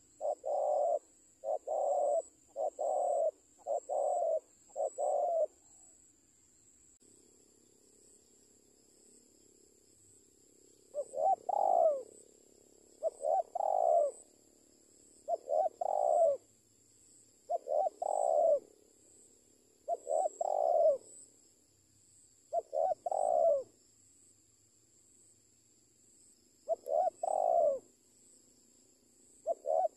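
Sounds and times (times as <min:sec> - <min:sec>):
dove cooing: 0:00.0 - 0:06.0, 0:10.9 - 0:12.2, 0:13.0 - 0:14.3, 0:15.2 - 0:16.5, 0:17.5 - 0:18.7, 0:19.8 - 0:21.2, 0:22.5 - 0:23.7, 0:26.6 - 0:27.9, 0:29.4 - 0:29.9.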